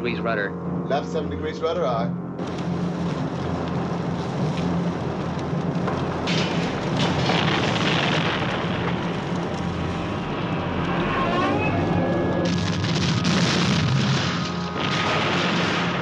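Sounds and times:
fire rumbling: 0.0 - 16.0
explosions: 5.7 - 16.0.

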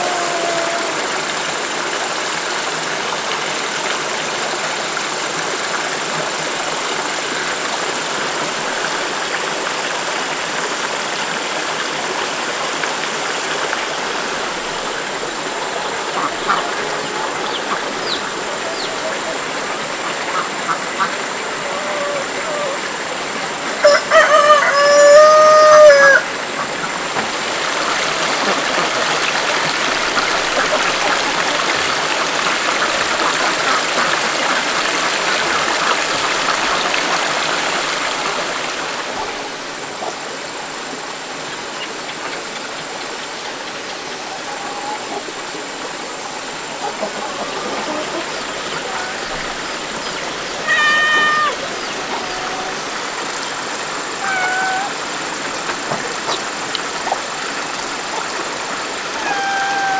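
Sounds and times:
rooster crowing: 0.0 - 1.2, 23.8 - 26.3, 59.2 - 59.9
short animal call: 50.5 - 53.0, 54.2 - 55.0, 59.2 - 59.9.

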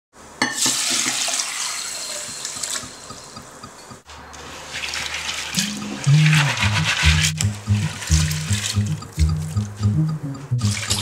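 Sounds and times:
water running into a bowl: 0.6 - 3.3, 4.4 - 9.3.

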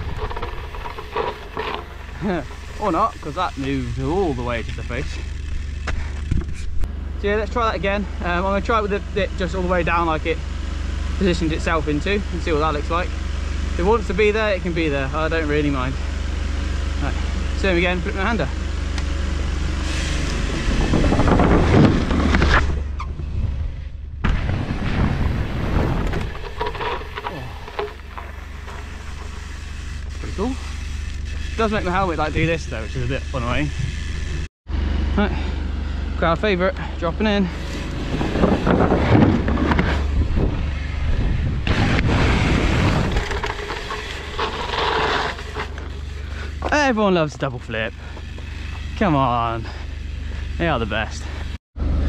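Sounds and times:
wind rumbling on camera: 0.0 - 3.7, 20.1 - 29.4, 37.9 - 44.8
tyres rolling on dirt: 0.0 - 10.4, 11.2 - 23.5, 24.2 - 34.5, 37.1 - 51.6
bike landing thump: 5.4 - 6.8, 20.6 - 23.6, 24.2 - 29.6, 38.0 - 46.7
wind buffeting a microphone: 20.3 - 22.2, 38.0 - 43.2
tyres clattering over wooden slats: 38.0 - 40.2.

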